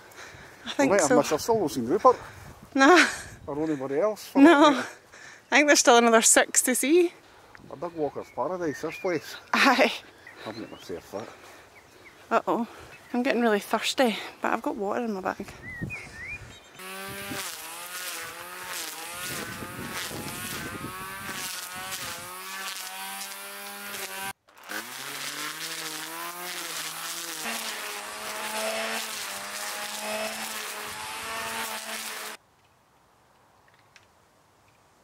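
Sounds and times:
string trimmer cutting grass: 16.8 - 32.4.

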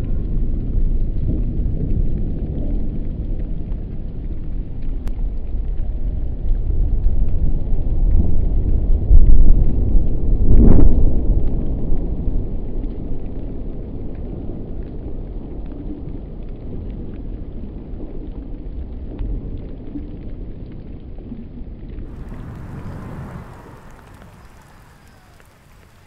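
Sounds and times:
hissing background with light ticks: 14.0 - 26.0
concrete viaduct collapsing rumble: 22.1 - 26.0.

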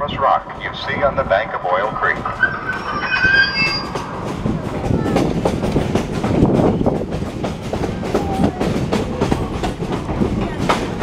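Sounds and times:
railroad car rumble: 0.0 - 11.0
train wheels clattering over rail joints: 4.0 - 11.0.

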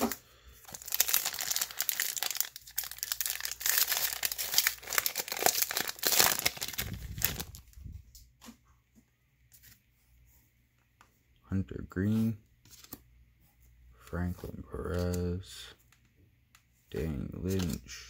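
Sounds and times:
foil wrapper tearing and crinkling: 0.0 - 7.6.

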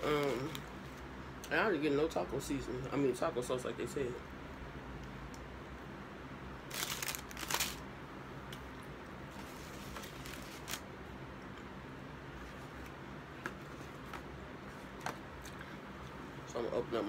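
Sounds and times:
paper wrappers crinkling: 6.7 - 7.8, 9.3 - 10.8.

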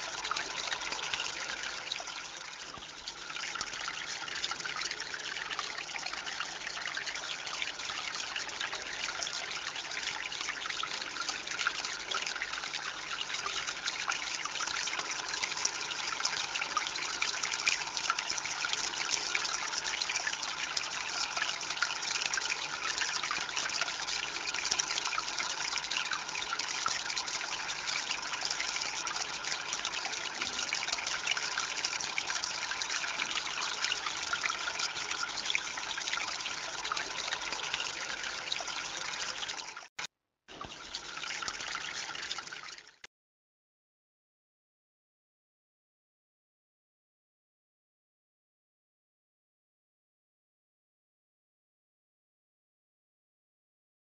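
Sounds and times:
water splashes and drips: 0.0 - 43.1
water trickling over stones: 0.0 - 43.1.

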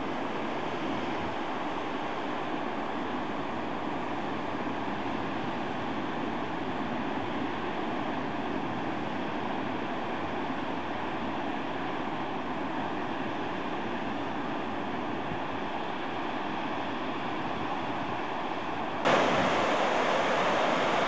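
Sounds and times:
surf waves on beach: 15.6 - 21.0.

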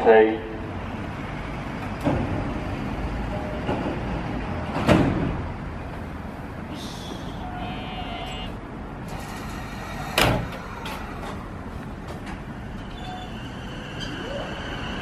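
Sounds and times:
train cab door slamming: 10.1 - 10.7.

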